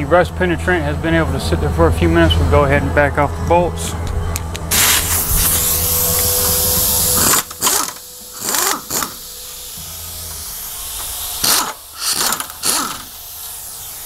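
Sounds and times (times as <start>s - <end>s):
cordless power tool loosening bolts: 4.7s - 14.0s.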